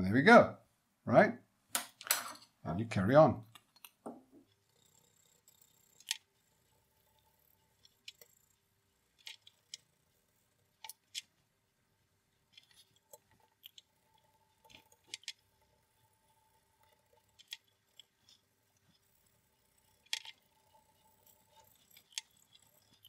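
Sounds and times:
faint steady hum: 0.0s - 23.0s
chopstick scraping metal chassis: 12.5s - 23.0s.

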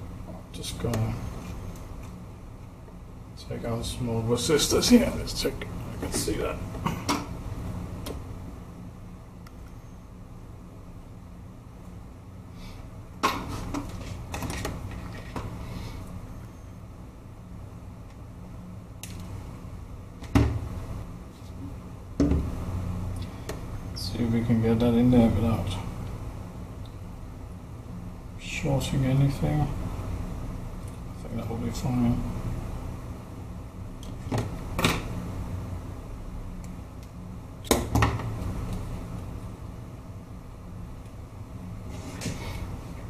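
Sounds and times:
low steady hum: 0.0s - 43.0s.

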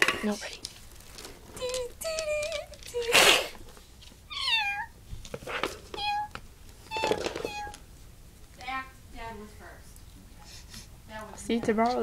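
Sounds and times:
child meowing like a cat: 5.9s - 7.8s.

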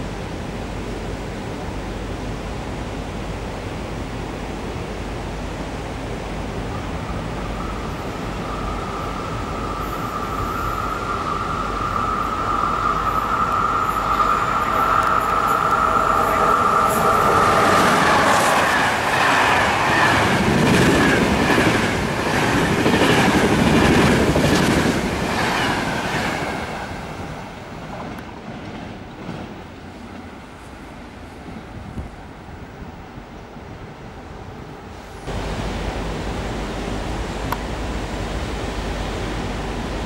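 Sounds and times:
electric train whine: 5.6s - 31.8s.

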